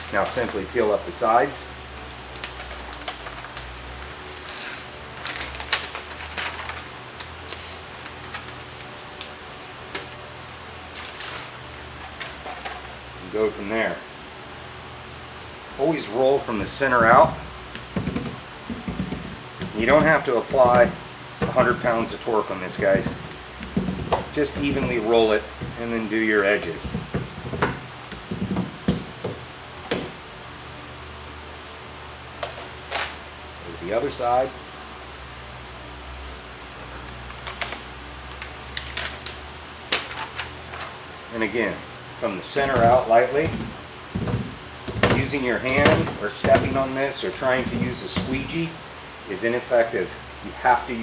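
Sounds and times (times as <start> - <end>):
faint steady hum: 0.0 - 51.0
paper liner peeling and crackling: 2.3 - 10.2
roller knocking and tapping: 17.0 - 21.9, 22.7 - 25.0, 25.6 - 25.9, 26.8 - 30.1, 42.6 - 46.8, 47.6 - 48.5.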